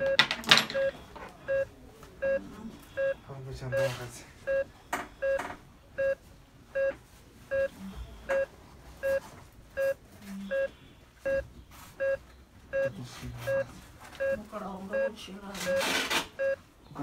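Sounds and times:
short electronic beeps: 3.0s - 5.4s, 6.0s - 6.2s, 6.8s - 7.7s, 9.8s - 11.4s, 12.0s - 14.4s, 15.0s - 16.6s.

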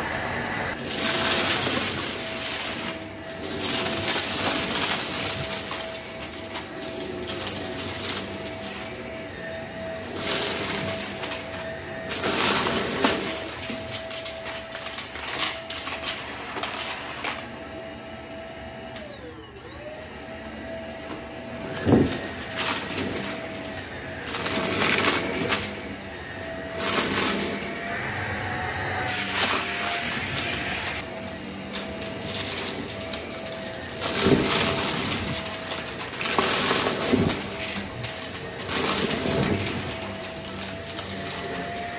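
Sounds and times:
stick vacuum motor whine: 0.0s - 41.9s.

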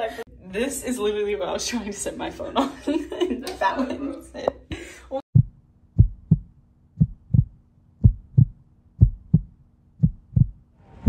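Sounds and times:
heartbeat thumps: 5.3s - 10.6s.

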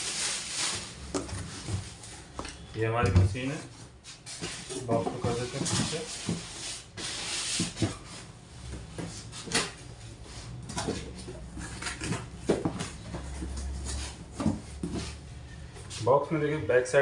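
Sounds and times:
cardboard box scraping and rustling: 4.3s - 8.3s.

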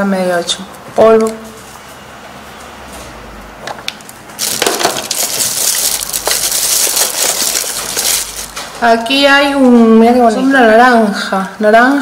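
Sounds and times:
plastic bag crinkling: 4.4s - 8.9s.

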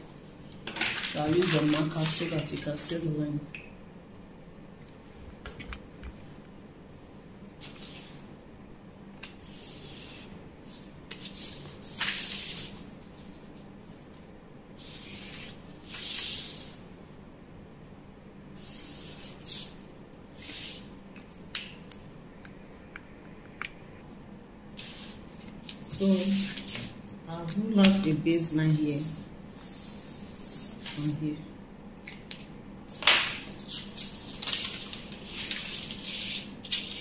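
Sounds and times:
marker pen strokes on paper: 9.4s - 13.6s, 18.6s - 19.8s, 28.8s - 31.1s.

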